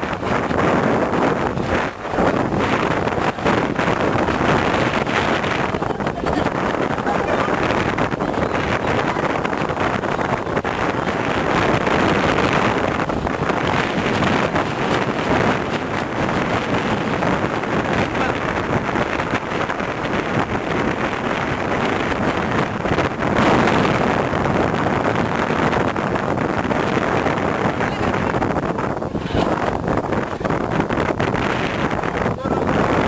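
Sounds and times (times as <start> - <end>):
wind buffeting microphone: 0.0 - 33.0
people talking indistinctly: 2.6 - 13.8, 27.5 - 33.0.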